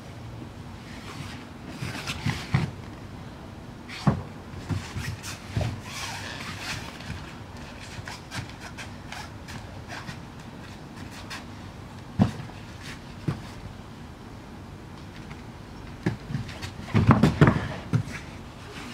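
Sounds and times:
bodies thudding on foam mats: 12.1s - 12.6s, 16.0s - 18.3s
people breathing: 17.3s - 18.9s.

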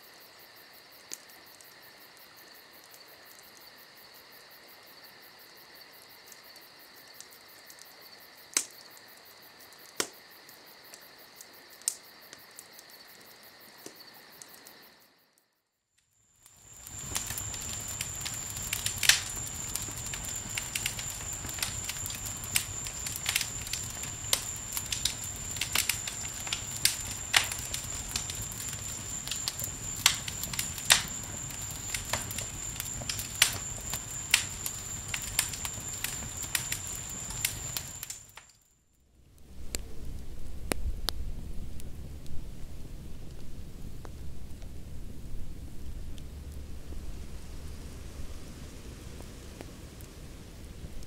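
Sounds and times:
campfire crackling and popping: 6.4s - 13.0s, 16.4s - 38.6s, 39.3s - 51.0s.

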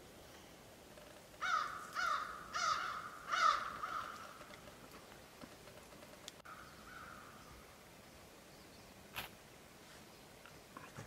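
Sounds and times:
crow cawing: 1.4s - 4.5s, 6.4s - 7.4s.

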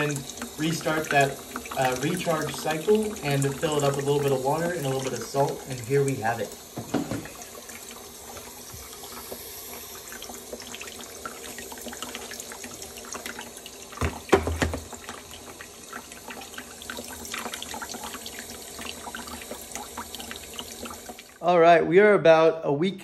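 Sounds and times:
water running into tank: 0.0s - 21.8s.

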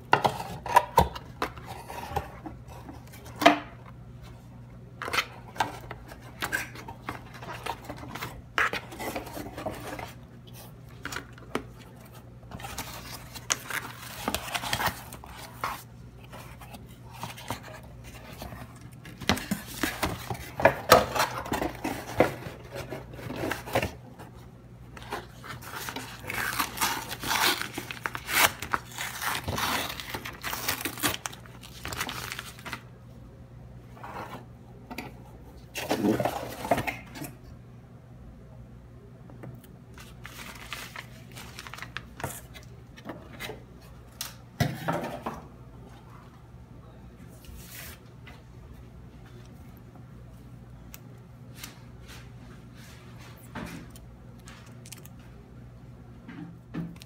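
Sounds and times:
plastic wrapping crinkling: 25.0s - 32.8s, 40.0s - 42.6s.

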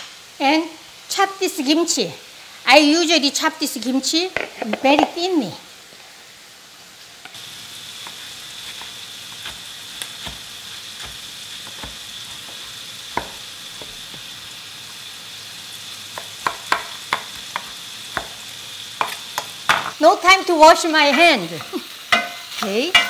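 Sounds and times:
meat sizzling in oil: 0.0s - 23.0s
knife chopping on wooden board: 8.7s - 14.3s, 16.2s - 18.4s.

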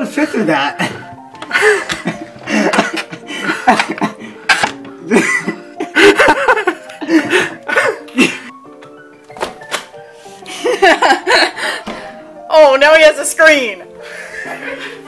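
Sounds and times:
background music: 0.0s - 15.0s
people laughing: 1.6s - 8.0s, 10.5s - 11.8s, 14.4s - 15.0s.

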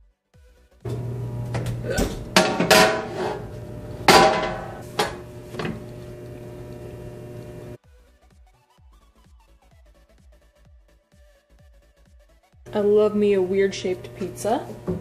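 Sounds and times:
steady hum: 0.9s - 7.8s, 12.7s - 15.0s
baking sheet clanking on metal grates: 2.1s - 5.8s.

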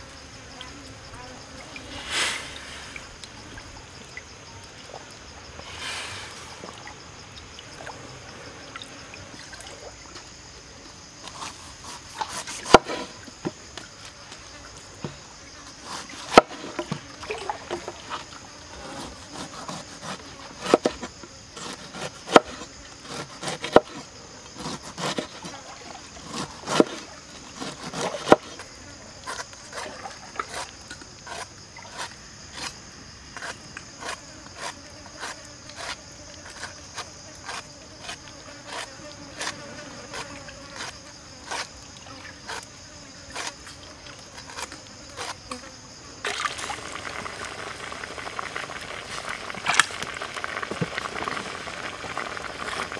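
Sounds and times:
high insect drone: 0.0s - 52.9s
knife paring fruit skin: 26.2s - 27.0s
fish sizzling in hot oil: 46.3s - 52.9s.

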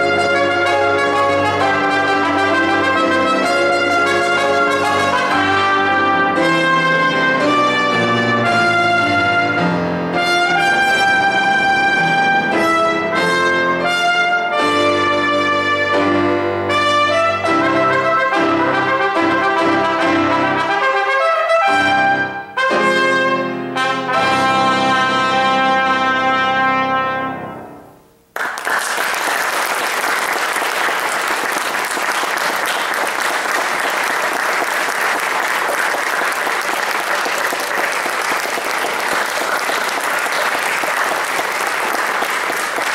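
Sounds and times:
trumpet and piano playing: 0.0s - 28.3s
audience applauding: 28.3s - 42.9s.

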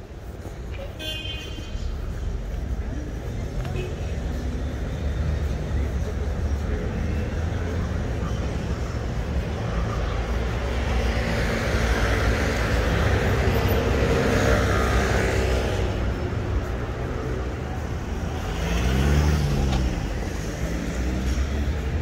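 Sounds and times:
city street traffic rumble: 0.0s - 22.0s
vehicle passing close by: 18.4s - 20.2s.

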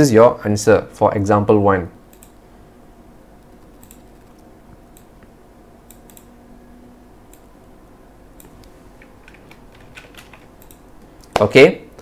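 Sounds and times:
faint room hum: 0.0s - 12.0s
computer mouse clicks: 2.1s - 2.4s, 3.4s - 5.3s, 5.9s - 6.3s, 8.4s - 11.4s.

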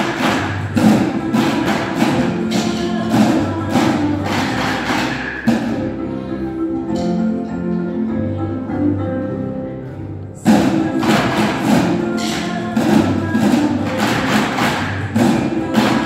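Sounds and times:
children drumming with sticks: 0.0s - 5.8s, 10.5s - 16.0s
recorded music: 0.0s - 16.0s.

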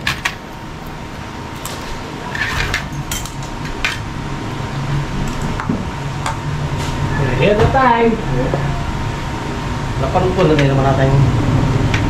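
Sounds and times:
steady low hum: 0.0s - 12.0s
forks clinking on ceramic plates: 2.3s - 4.0s.

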